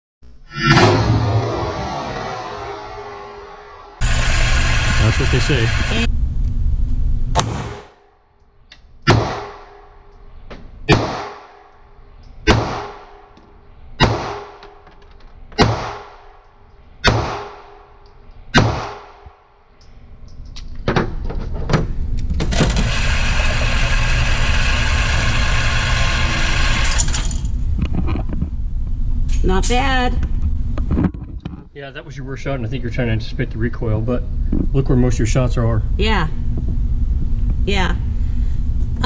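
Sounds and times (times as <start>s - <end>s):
target carrier mechanical running: 0.7s - 6.2s, 22.2s - 27.6s
pistol shots echoing indoors: 10.9s - 11.7s.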